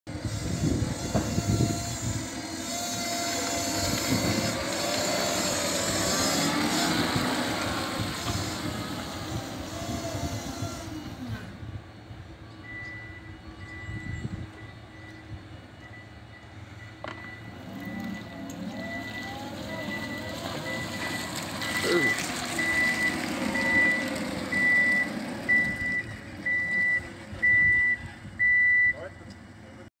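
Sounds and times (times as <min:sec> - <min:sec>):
electric tractor motor whining: 0:00.1 - 0:12.2, 0:17.0 - 0:28.2
scraper grating over wet concrete: 0:00.4 - 0:11.0.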